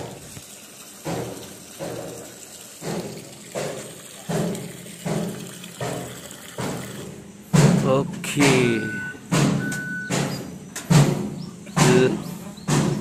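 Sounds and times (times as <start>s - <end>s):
water sloshing in a tub: 0.0s - 13.0s.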